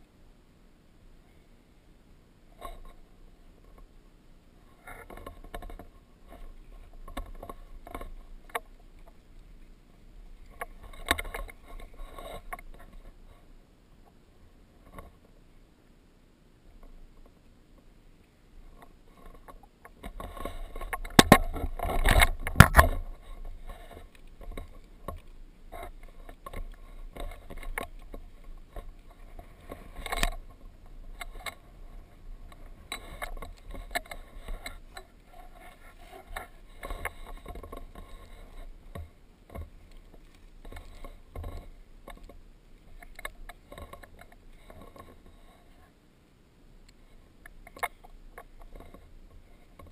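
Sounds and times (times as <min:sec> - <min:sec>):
camera handling rustle: 0:20.0 - 0:30.6.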